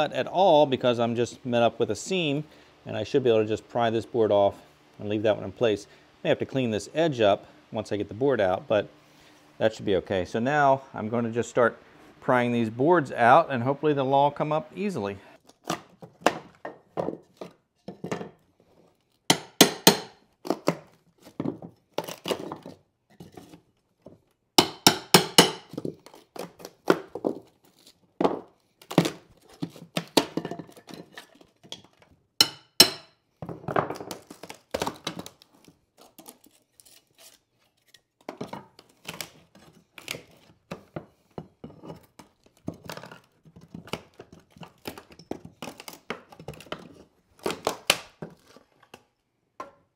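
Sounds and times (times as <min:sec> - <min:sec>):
floorboards cracking and clattering: 0:15.5 - 0:18.5, 0:20.4 - 0:24.3, 0:25.7 - 0:32.2, 0:33.4 - 0:36.5.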